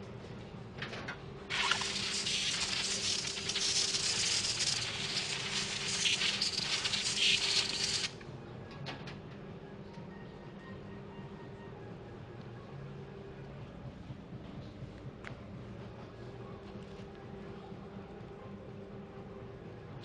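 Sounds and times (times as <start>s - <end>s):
paint spray gun hissing: 1.5s - 8.2s.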